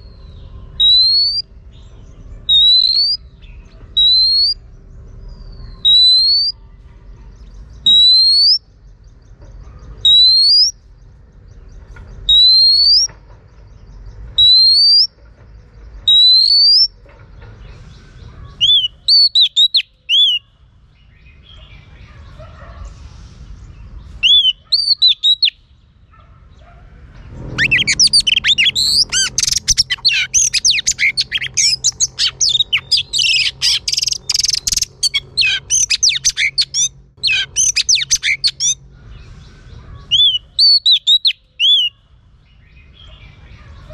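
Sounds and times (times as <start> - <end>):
bird song notes: 0.0 - 43.9
bird rising whistle: 0.8 - 1.4, 2.5 - 3.2, 14.4 - 15.1, 16.1 - 16.9, 27.6 - 36.7.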